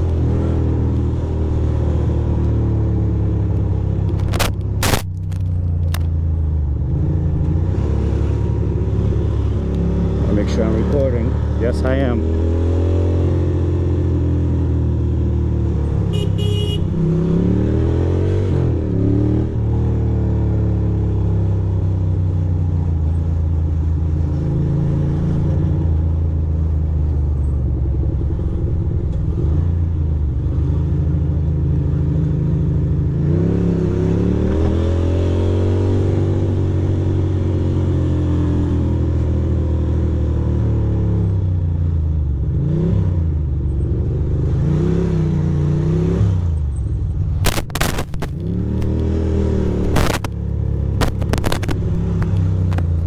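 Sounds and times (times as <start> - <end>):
city traffic: 0.0 - 53.0
motorcycle engine revving: 6.8 - 21.4, 47.4 - 53.0.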